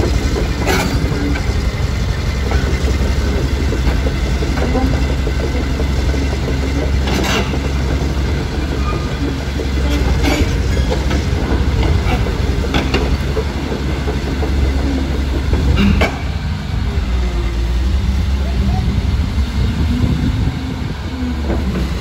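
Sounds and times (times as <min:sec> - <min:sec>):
steel track chains clattering: 0:00.0 - 0:17.7
excavator diesel engine running: 0:00.0 - 0:22.0.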